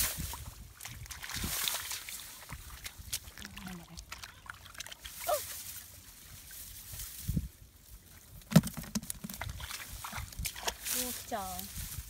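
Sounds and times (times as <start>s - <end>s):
muddy water sloshing and splashing: 0.0s - 12.0s
bucket knocks: 8.5s - 9.5s.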